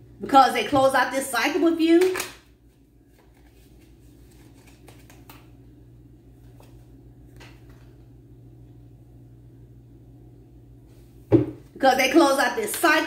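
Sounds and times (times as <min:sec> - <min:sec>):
low room hum: 0:00.0 - 0:13.0
cards clicking and tapping: 0:04.3 - 0:05.5.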